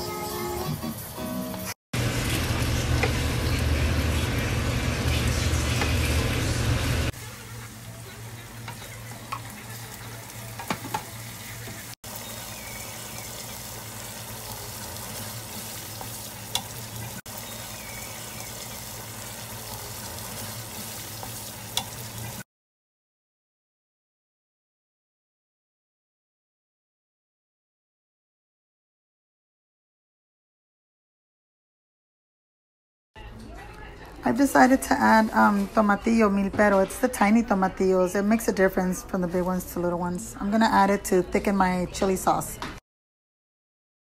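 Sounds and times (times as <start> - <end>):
meat sizzling in a skillet: 2.0 - 22.4
spoon knocking against pan: 10.6 - 11.1.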